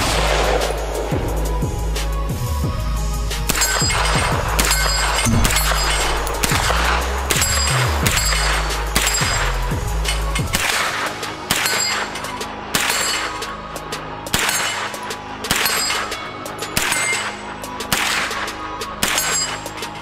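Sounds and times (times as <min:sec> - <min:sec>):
background music: 0:00.0 - 0:20.0
rifle shots: 0:03.5 - 0:09.5, 0:10.4 - 0:13.4, 0:14.3 - 0:16.1, 0:16.8 - 0:19.6.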